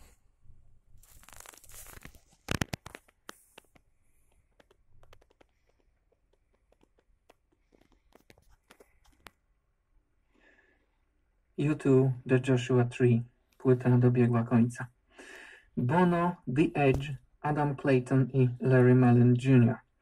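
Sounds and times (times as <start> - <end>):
tape clicks and crackles: 1.0 - 9.5.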